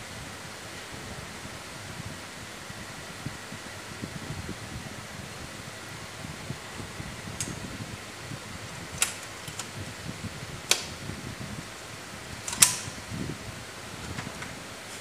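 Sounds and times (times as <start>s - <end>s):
fan-like hum: 0.0s - 15.0s
circuit breaker clicks: 8.9s - 9.7s, 10.7s - 11.0s, 12.4s - 13.0s.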